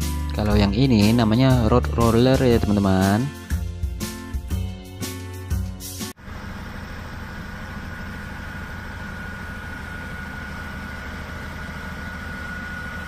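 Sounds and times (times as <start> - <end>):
road roller diesel engine running: 6.1 - 13.0.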